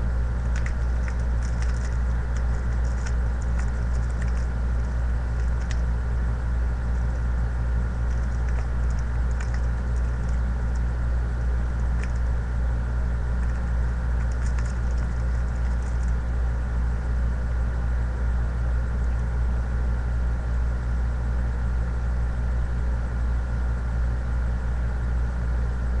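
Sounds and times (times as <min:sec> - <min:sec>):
steady low hum: 0:00.0 - 0:26.0
plastic packaging crinkling: 0:00.4 - 0:05.8.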